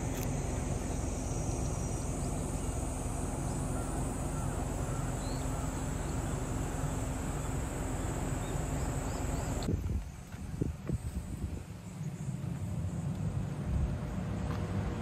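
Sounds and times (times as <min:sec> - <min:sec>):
steady low hum: 0:00.0 - 0:15.0
faint bird chirps: 0:03.4 - 0:09.7
wind on microphone: 0:09.6 - 0:11.8.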